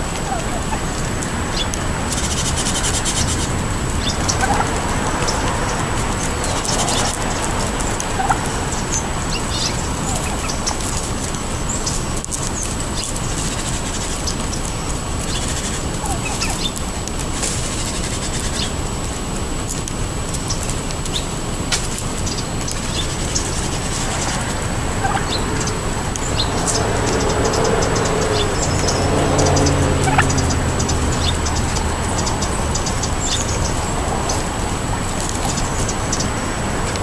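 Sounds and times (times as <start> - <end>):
beaks tapping on pavement: 0.0 - 37.0
soft turkey calls: 0.2 - 0.9, 4.1 - 5.8, 6.5 - 10.9, 15.4 - 16.8, 25.0 - 26.8, 30.0 - 30.4.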